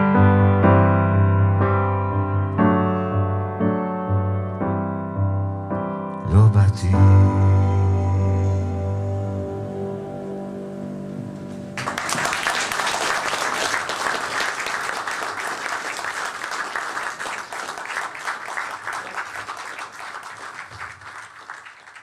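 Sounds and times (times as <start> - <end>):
audience applauding: 11.8 - 22.0.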